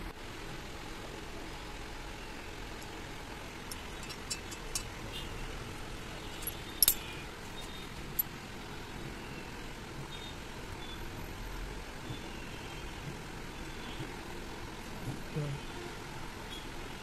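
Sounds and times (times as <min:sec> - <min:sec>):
small metal parts clinking: 0:03.6 - 0:05.2, 0:06.2 - 0:08.3.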